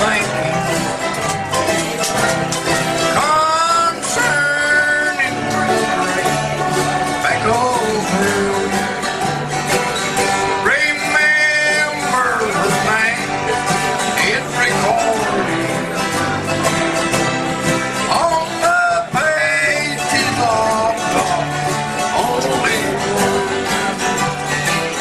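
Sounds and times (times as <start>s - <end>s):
man singing through microphone: 0.0s - 0.8s, 3.1s - 6.2s, 7.1s - 9.0s, 10.4s - 13.5s, 14.1s - 15.8s, 18.1s - 24.0s
acoustic guitars strumming: 0.0s - 25.0s.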